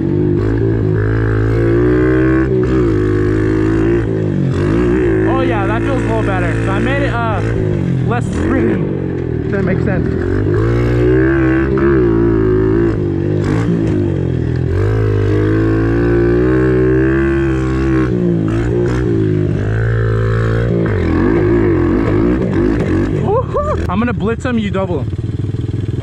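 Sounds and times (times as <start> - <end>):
motorbike engine revving: 0.0 - 26.0.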